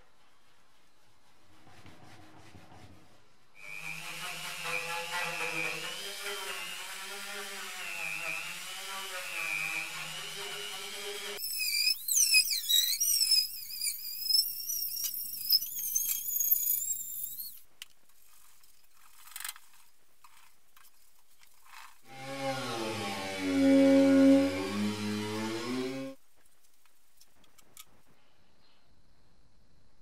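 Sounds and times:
rotary tool whining: 0:03.6 - 0:17.6, 0:22.1 - 0:26.2
high-pitched squeaking and scraping: 0:11.3 - 0:17.6, 0:22.1 - 0:26.2.

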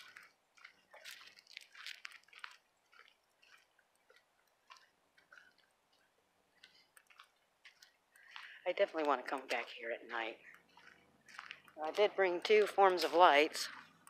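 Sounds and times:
footsteps crunching dry leaves: 0:00.0 - 0:04.2, 0:09.4 - 0:14.0.

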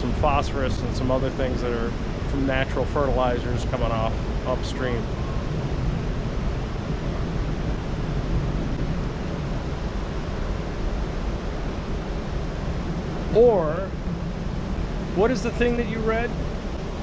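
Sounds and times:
water rushing and foaming: 0:00.0 - 0:17.0.

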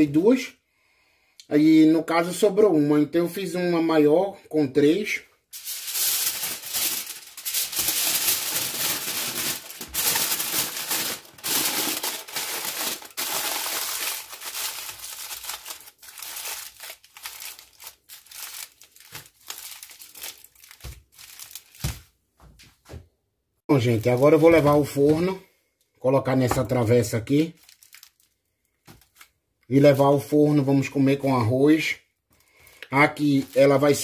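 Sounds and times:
aluminium foil crinkling: 0:05.5 - 0:22.1, 0:27.4 - 0:29.3, 0:32.6 - 0:34.0.

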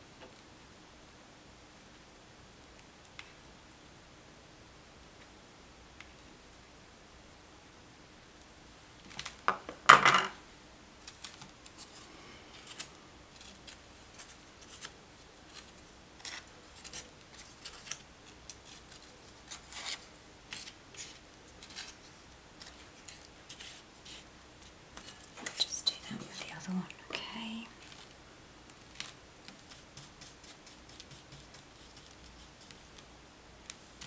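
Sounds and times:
crepe paper rustling: 0:11.0 - 0:25.7, 0:27.8 - 0:34.0.

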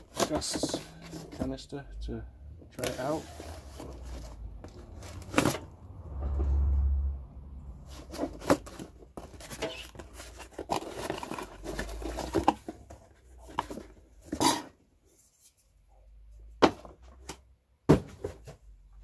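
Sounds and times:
cardboard rustling: 0:00.0 - 0:01.6, 0:02.8 - 0:05.7, 0:07.8 - 0:15.6.

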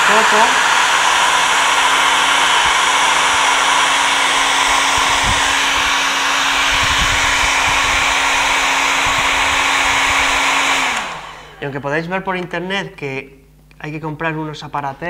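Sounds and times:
hair dryer running: 0:00.0 - 0:11.8.

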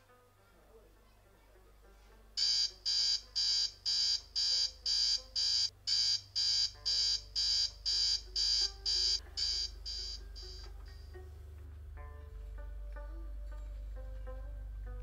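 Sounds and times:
digital alarm clock beeping: 0:02.4 - 0:10.7.

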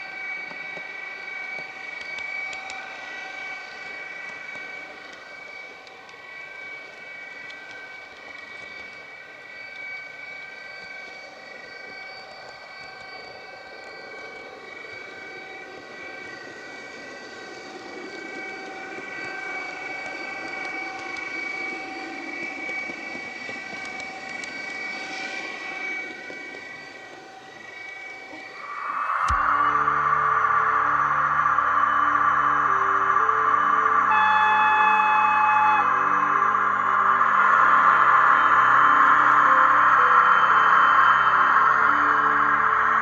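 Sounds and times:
model train motor whine: 0:00.0 - 0:43.0
wheels rumbling on rail: 0:11.6 - 0:28.7.

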